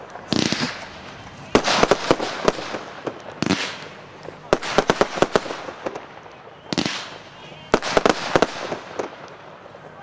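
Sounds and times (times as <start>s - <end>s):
firework shells bursting: 0.0s - 9.5s.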